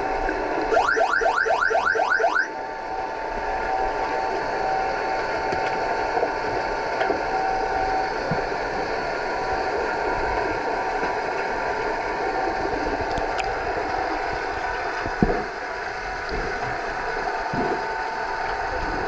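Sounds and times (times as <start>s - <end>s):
underwater siren whooping: 0.6s - 6.6s.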